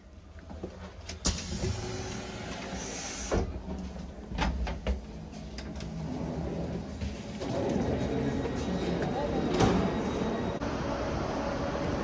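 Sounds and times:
train door clunk: 8.5s - 10.2s.

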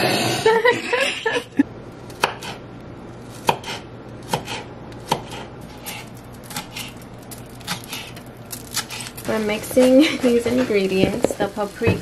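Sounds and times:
knife chopping on wooden board: 2.2s - 2.6s, 3.4s - 6.9s.

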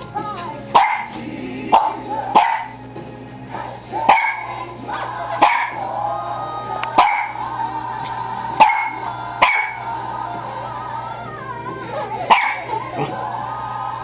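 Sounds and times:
music playing: 0.0s - 14.0s
dog barking shrilly: 0.8s - 1.1s, 1.8s - 2.7s, 4.1s - 4.6s, 5.4s - 5.8s, 7.0s - 7.4s, 8.6s - 9.8s, 12.3s - 12.7s.

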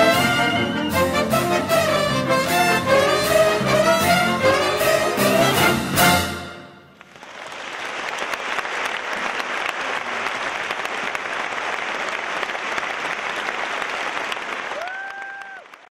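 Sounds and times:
audience applauding: 7.0s - 15.9s.

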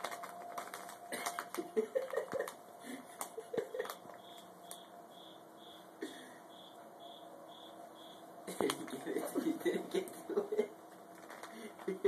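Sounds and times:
plastic bag crinkling: 0.0s - 4.4s, 11.1s - 12.0s
faint high chirp: 4.0s - 8.4s.

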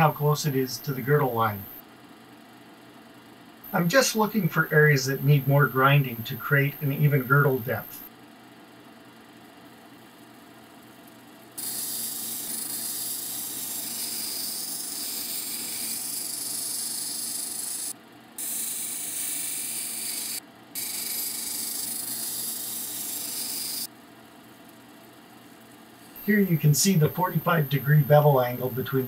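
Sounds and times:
grinding machine running: 11.6s - 23.9s.

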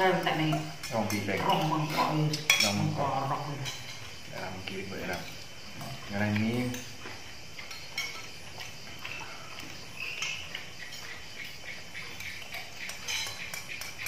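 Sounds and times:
crickets chirping: 0.0s - 14.0s
cutlery clicking on plates: 0.4s - 3.0s, 7.6s - 9.2s, 12.1s - 14.0s.

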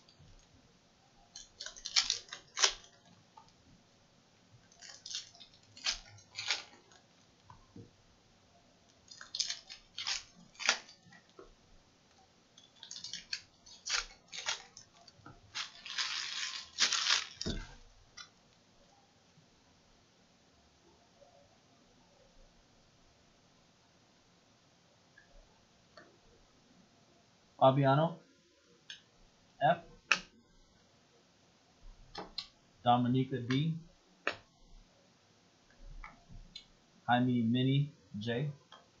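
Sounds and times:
foil wrappers crinkling and tearing: 1.3s - 3.1s, 4.6s - 7.0s, 9.0s - 11.3s, 12.7s - 17.8s.

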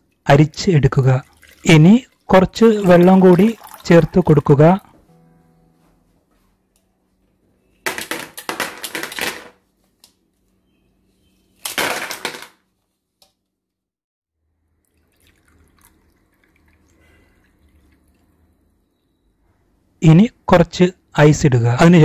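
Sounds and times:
juice pouring into a glass: 1.0s - 4.8s, 14.7s - 18.5s.

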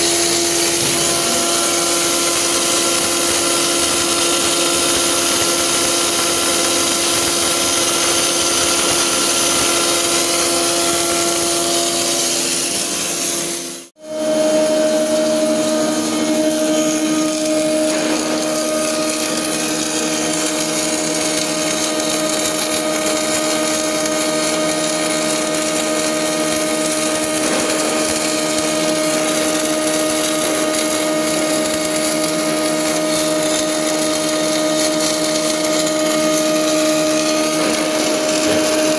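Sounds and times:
welding arc hissing: 0.0s - 38.9s.

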